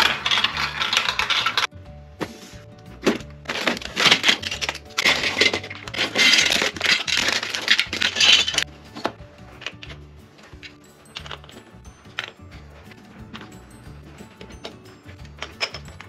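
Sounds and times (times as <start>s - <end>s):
plastic bags crinkling: 0.0s - 1.7s, 3.2s - 8.6s
plastic track pieces clattering: 0.0s - 1.7s, 3.0s - 10.0s, 14.4s - 16.0s.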